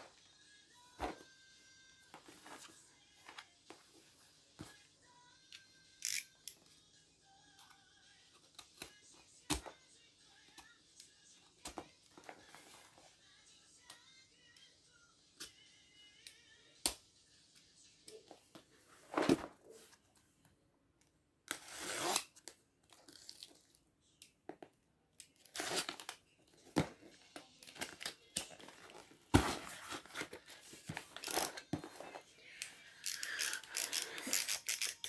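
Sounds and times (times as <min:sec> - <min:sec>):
cardboard box tape tearing: 0:21.5 - 0:22.4, 0:25.4 - 0:26.1.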